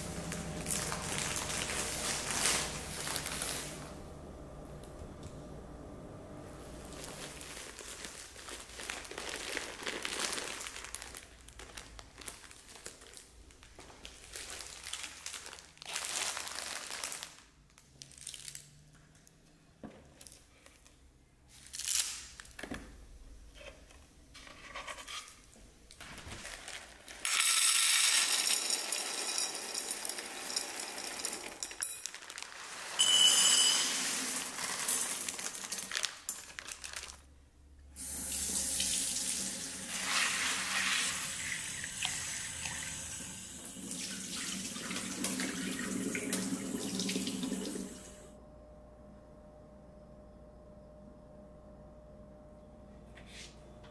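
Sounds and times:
plastic bags crinkling: 0.1 - 4.0, 6.7 - 18.8, 25.9 - 27.4, 31.4 - 33.0, 33.7 - 37.3
dried beans pouring into glass bowl: 27.2 - 36.9.

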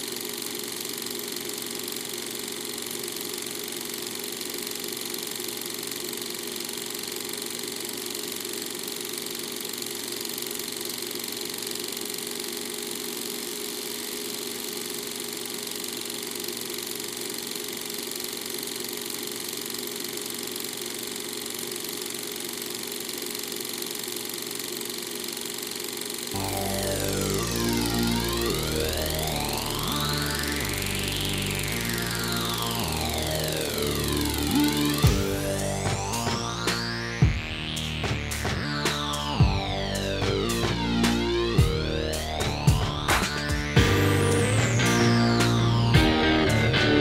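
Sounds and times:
music with deep bass: 26.4 - 47.0.

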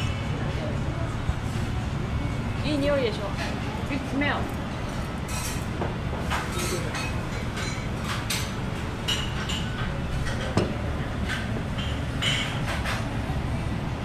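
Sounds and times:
dishes and cutlery clinking: 4.4 - 13.1.

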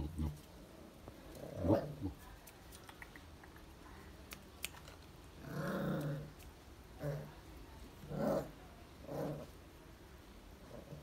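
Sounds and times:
puppy growling: 1.3 - 2.2, 5.4 - 6.4, 7.0 - 7.4, 8.0 - 9.6
claws clicking on concrete: 2.3 - 3.7.

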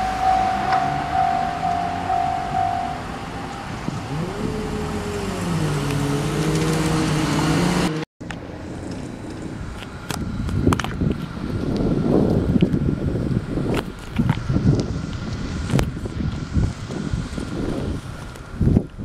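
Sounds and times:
railroad crossing alarm ringing: 0.0 - 4.2
whining tones sliding in pitch: 0.0 - 6.0.

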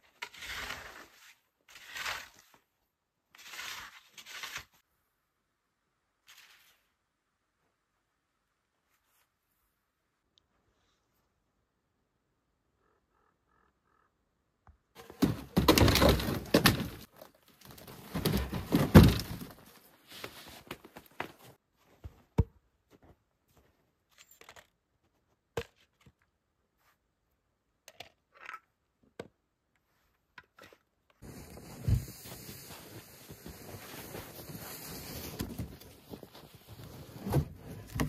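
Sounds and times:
crunching and rustling in snow: 31.2 - 38.0.

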